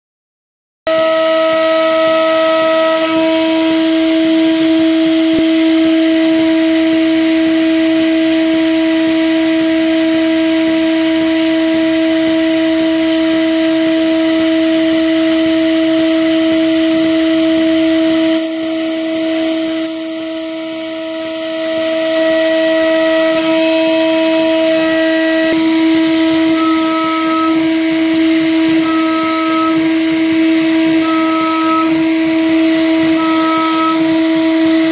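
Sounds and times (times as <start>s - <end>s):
router spindle milling metal: 1.0s - 11.5s, 12.2s - 34.9s.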